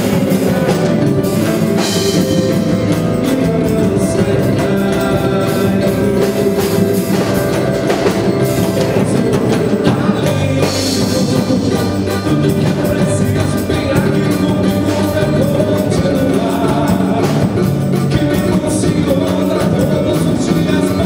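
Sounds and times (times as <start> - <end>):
mallet percussion rhythm: 0.0 - 21.0
man singing: 0.0 - 21.0.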